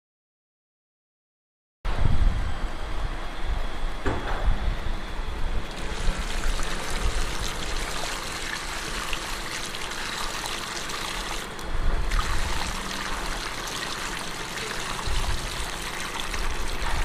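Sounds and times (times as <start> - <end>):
water splashing into drain grate: 5.7 - 17.0.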